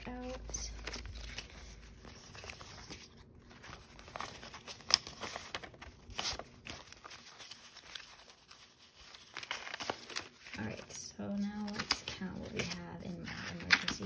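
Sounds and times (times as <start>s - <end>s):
paper bills rustling: 0.0s - 14.0s.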